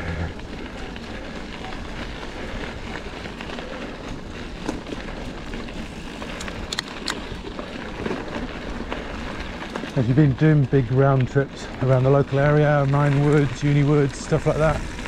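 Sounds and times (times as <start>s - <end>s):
bike tyre noise with low rumble: 0.0s - 15.0s
sharp clicks and rattles: 4.4s - 15.0s.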